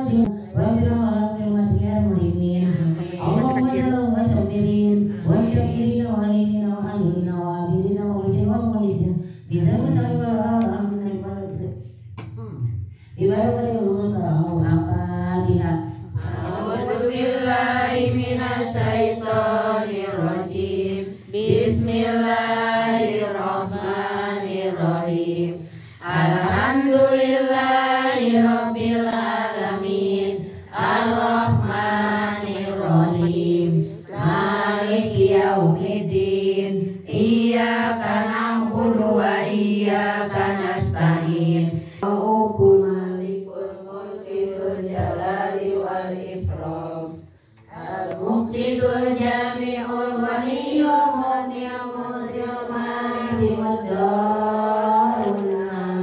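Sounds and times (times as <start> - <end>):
women chanting a slow melody: 16.2 - 56.0.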